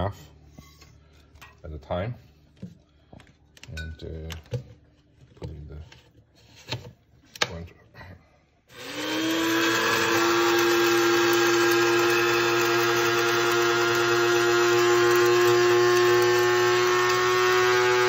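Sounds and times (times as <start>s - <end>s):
electric spice grinder whine: 8.7s - 18.0s.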